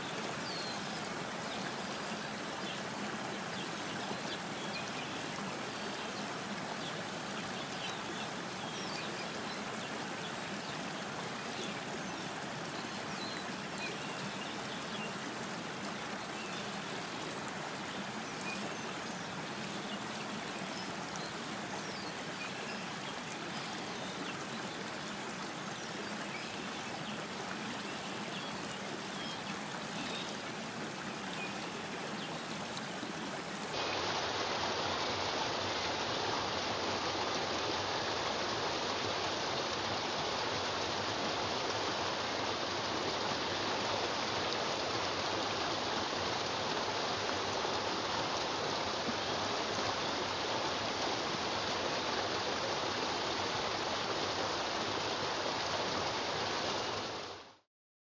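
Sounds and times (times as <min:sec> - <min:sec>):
stream trickling over pebbles: 0:00.0 - 0:57.6
small water plinks: 0:16.4 - 0:33.8.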